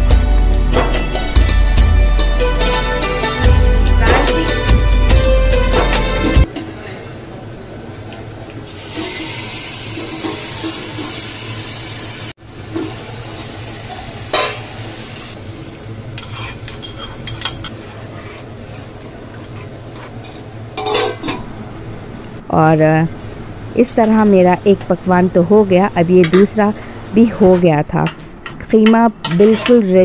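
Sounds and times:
steady sizzling hiss: 0:08.7 - 0:17.8.

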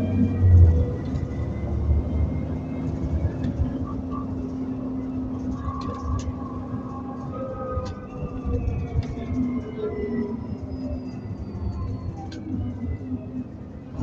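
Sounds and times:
bus engine hum and whine: 0:00.0 - 0:14.0.

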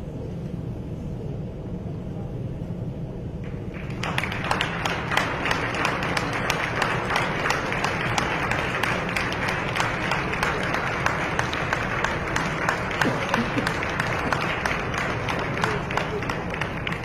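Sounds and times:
audience applauding: 0:03.4 - 0:17.0.

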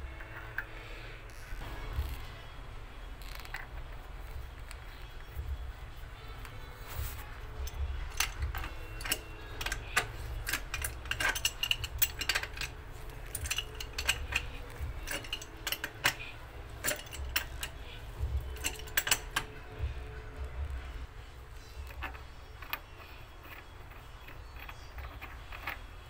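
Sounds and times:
pipe wrench clicking on metal pipe: 0:07.6 - 0:19.6.

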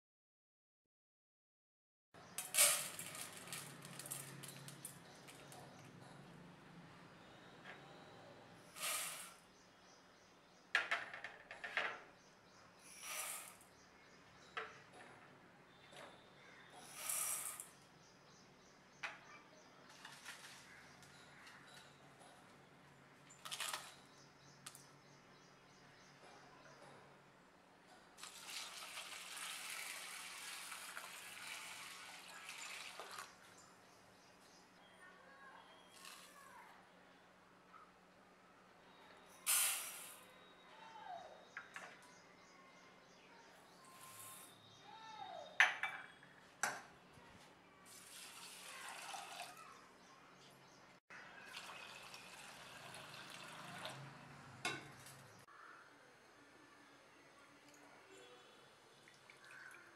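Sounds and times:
water pouring into steel bowl: 0:28.2 - 0:33.3, 0:48.0 - 0:49.6, 0:51.5 - 0:54.1.

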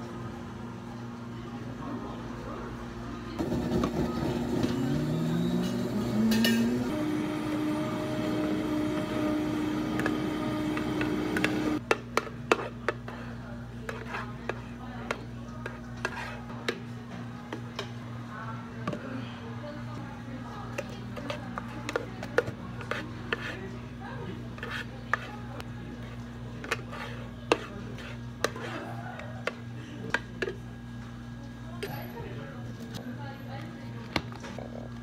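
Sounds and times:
blender whining: 0:03.4 - 0:11.8.

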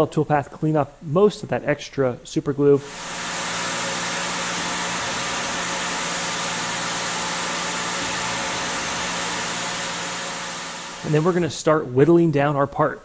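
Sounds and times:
milling machine hiss: 0:02.8 - 0:11.6.

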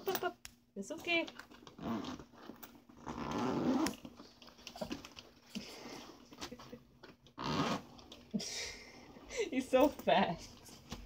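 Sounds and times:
handling clicks and rustles: 0:00.9 - 0:08.3.

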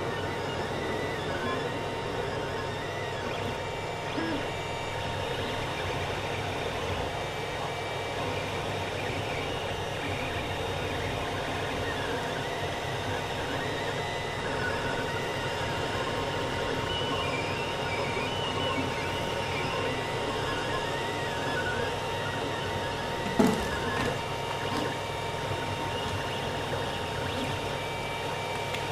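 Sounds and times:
cooling fans humming: 0:00.0 - 0:28.9
stepper motors whirring: 0:00.0 - 0:28.9.

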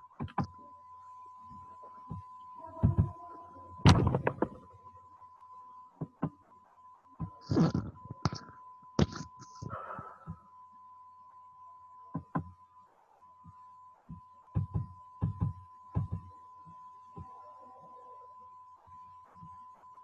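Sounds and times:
short scratchy sounds: 0:09.0 - 0:09.6.

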